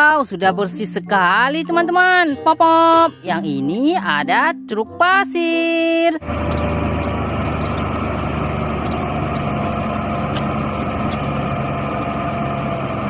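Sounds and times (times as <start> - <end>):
diesel truck engine running: 6.2 - 13.0.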